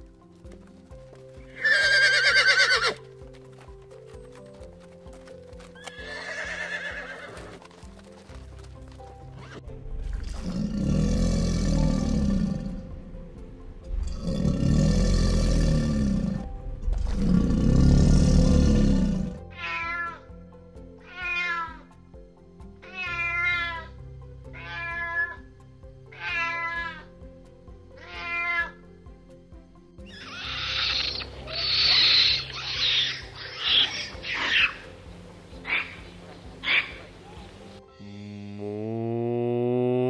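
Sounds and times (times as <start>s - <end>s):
background music: 0.0s - 40.0s
alligator bellowing: 10.0s - 12.9s, 14.0s - 19.4s
cat meowing: 19.5s - 20.2s, 21.0s - 21.9s, 22.8s - 23.9s, 24.6s - 25.4s, 26.1s - 27.0s, 28.0s - 28.8s, 30.2s - 34.8s.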